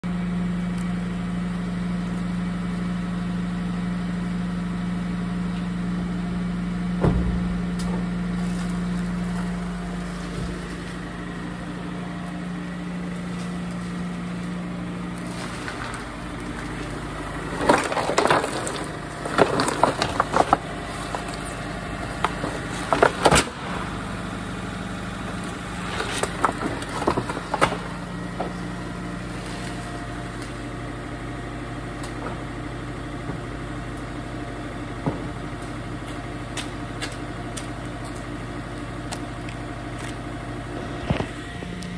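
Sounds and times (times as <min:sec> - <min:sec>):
steady low hum: 0:00.0 - 0:41.9
car door thud: 0:07.0 - 0:08.1
cardboard boxes crunching under tyres: 0:07.4 - 0:11.5, 0:12.2 - 0:24.1, 0:25.3 - 0:30.7.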